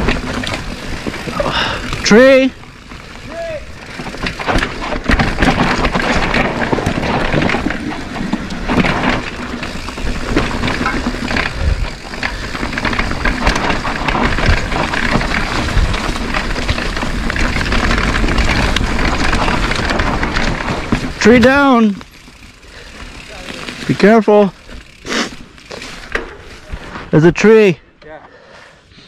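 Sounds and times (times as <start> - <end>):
tyres crunching over dirt: 0.0 - 27.5
mountain bike rattling: 0.0 - 28.8
wind buffeting microphone: 9.7 - 21.5.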